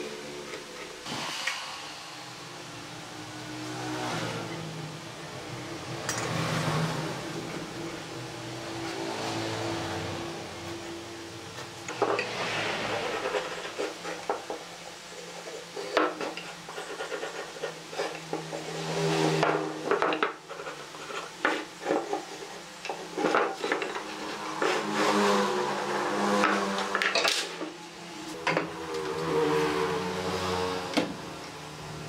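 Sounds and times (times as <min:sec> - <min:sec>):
wood knocking and scraping on wood: 0:11.5 - 0:14.8, 0:15.4 - 0:25.3.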